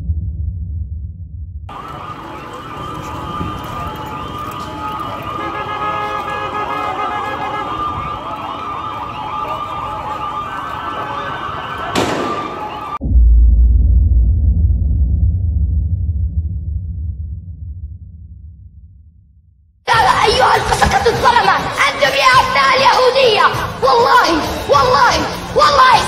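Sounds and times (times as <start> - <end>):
deep low rumble: 0.0 - 1.7, 13.0 - 19.5
sirens and alarms wailing: 1.7 - 13.0.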